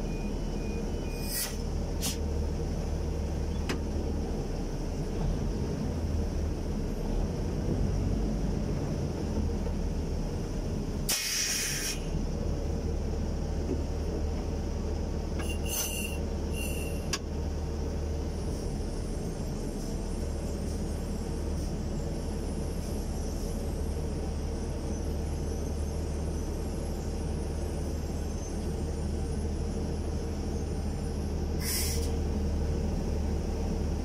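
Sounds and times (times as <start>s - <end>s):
heavy diesel engine running: 0.0s - 34.0s
brief hiss: 1.2s - 2.2s, 11.1s - 12.1s, 31.6s - 32.2s.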